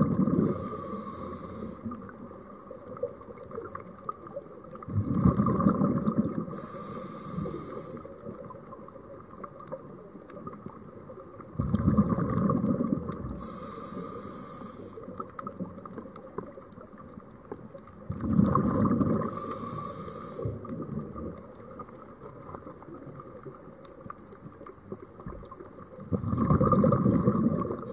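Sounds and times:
exhaled bubbles underwater: 0.0s - 27.9s
regulator inhalation hiss: 0.4s - 2.0s, 6.5s - 8.2s, 13.4s - 15.1s, 19.2s - 20.6s.

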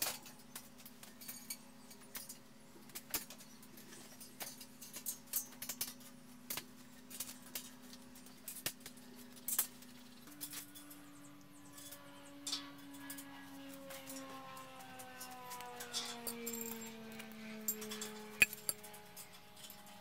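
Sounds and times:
small metal hardware clicking: 15.9s - 19.9s.

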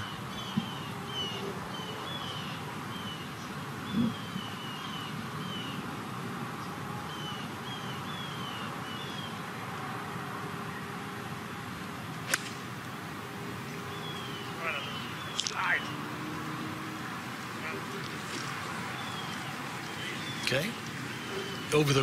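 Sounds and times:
outdoor hush: 0.0s - 22.0s
bird chirping: 13.3s - 22.0s.

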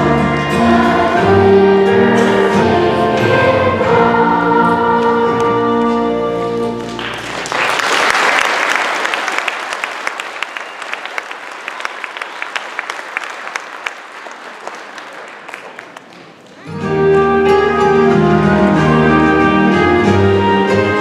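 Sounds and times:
choir held chord: 0.0s - 6.8s
audience applause: 6.8s - 16.7s.

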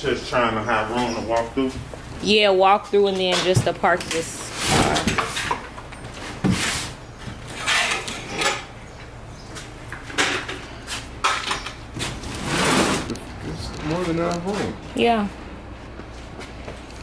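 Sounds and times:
cardboard boxes scraping and knocking: 12.0s - 13.2s.

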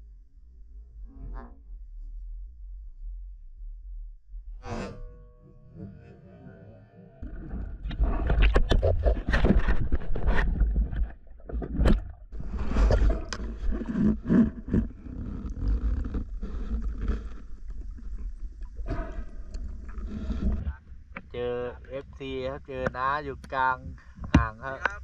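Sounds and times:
underwater rumble: 0.0s - 4.6s, 5.6s - 25.0s.

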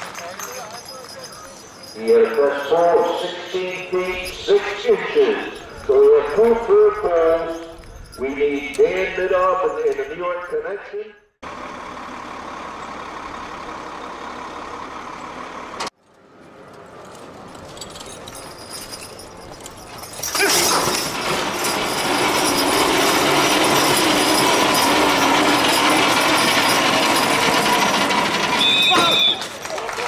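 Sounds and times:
truck engine running under load: 11.4s - 30.0s.

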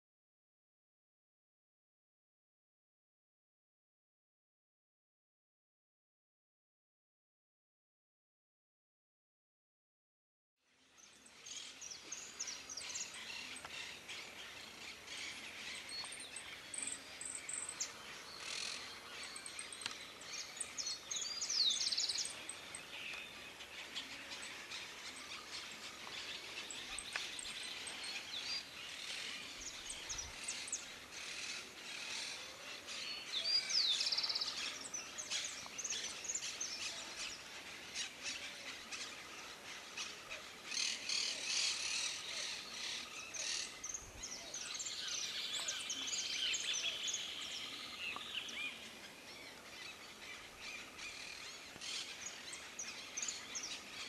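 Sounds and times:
birds chirping: 10.9s - 54.0s
steady background hiss: 11.2s - 54.0s.

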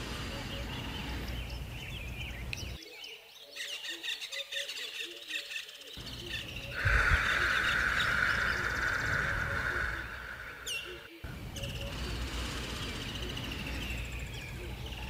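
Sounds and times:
steady hiss: 0.0s - 1.7s, 6.0s - 14.6s
birds chirping and calling: 0.0s - 15.0s.

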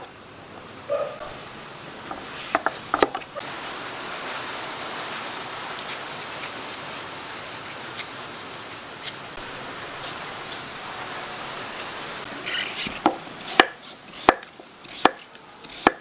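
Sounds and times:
knife slicing pumpkin hiss: 12.3s - 16.0s.

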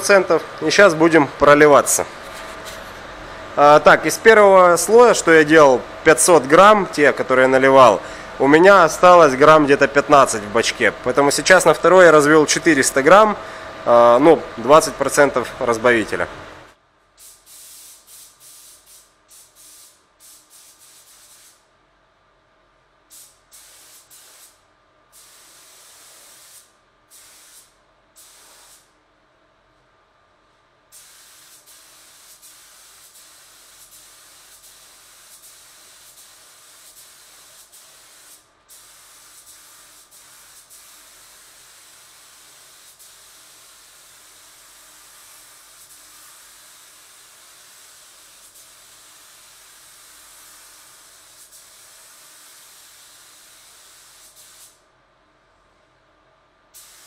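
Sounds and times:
paint spray gun hissing: 17.2s - 21.6s, 23.1s - 24.6s, 25.2s - 28.9s, 30.9s - 54.8s, 56.8s - 57.0s.

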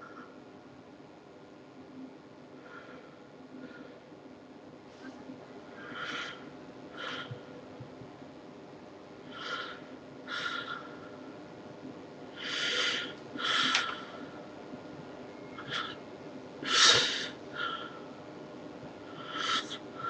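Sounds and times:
man breathing heavily: 2.5s - 4.1s, 5.6s - 7.5s, 9.2s - 11.4s, 12.3s - 14.5s, 15.6s - 16.0s, 16.6s - 18.2s, 19.0s - 20.0s.

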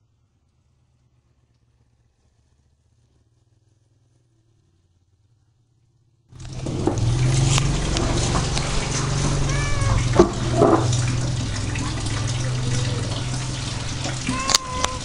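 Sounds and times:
cat meowing: 9.0s - 10.9s, 14.0s - 15.0s.

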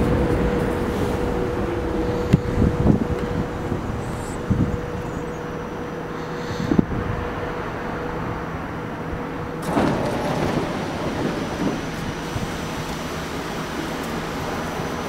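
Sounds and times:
stopped train humming: 0.0s - 15.0s
train doors sliding open: 9.4s - 15.0s.

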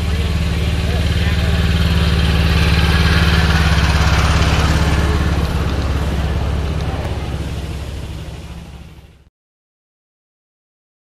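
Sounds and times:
miniature locomotive engine running: 0.0s - 9.3s.

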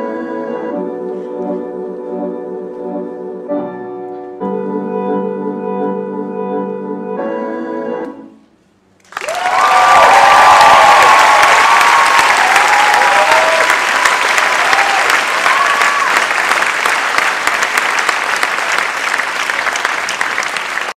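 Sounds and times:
audience applauding: 9.0s - 21.0s
whoops and cheering: 9.2s - 16.4s.

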